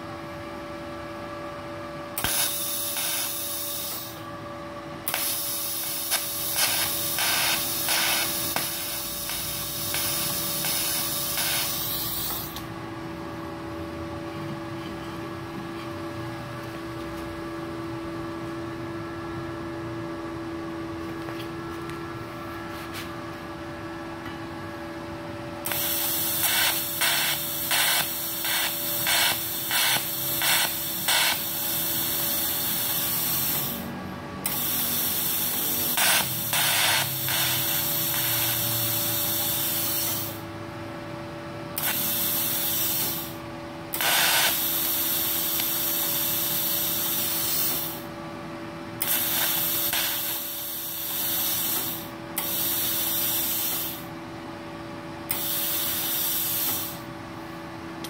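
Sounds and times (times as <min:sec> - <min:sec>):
welder hum: 0:00.9 - 0:14.0, 0:24.7 - 0:40.6, 0:41.7 - 0:48.2, 0:49.0 - 0:54.2, 0:55.3 - 0:57.1
welding arc hissing: 0:02.2 - 0:04.2, 0:05.0 - 0:12.7, 0:25.6 - 0:40.5, 0:41.8 - 0:48.1, 0:49.0 - 0:54.1, 0:55.3 - 0:57.1.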